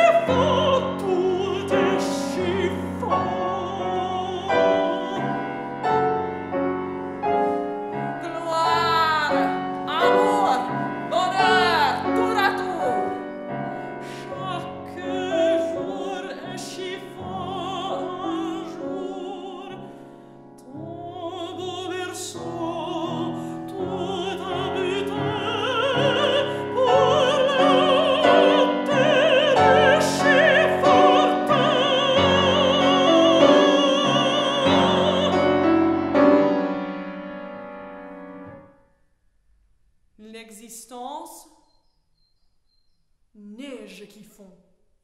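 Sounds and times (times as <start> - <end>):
woman singing with vibrato: 0.0 - 5.8, 8.0 - 19.9, 20.6 - 35.9
grand piano accompaniment: 0.0 - 38.8.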